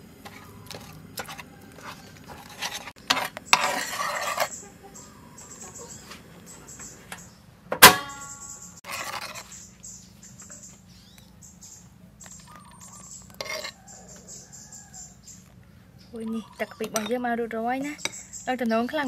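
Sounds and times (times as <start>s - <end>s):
short scraping: 0.2s - 4.6s.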